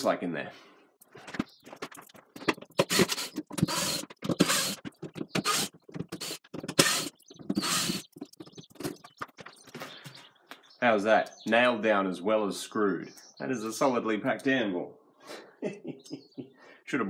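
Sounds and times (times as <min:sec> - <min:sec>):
cordless drill backing out screws: 0:02.8 - 0:08.1.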